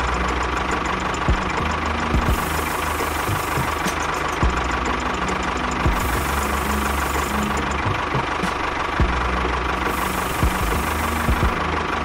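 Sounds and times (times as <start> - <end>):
small motor whining: 5.6 - 7.9.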